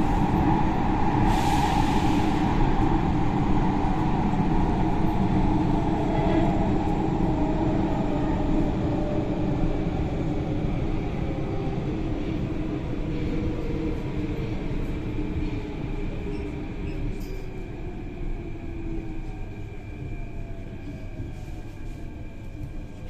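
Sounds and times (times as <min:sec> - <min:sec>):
train wheels rumbling on rail: 0:00.0 - 0:23.0.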